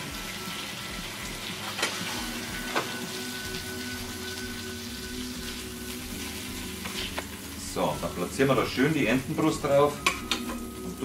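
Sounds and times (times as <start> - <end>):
meat sizzling in a frying pan: 0.0 - 11.0
spoon clicking against pan: 10.0 - 10.6.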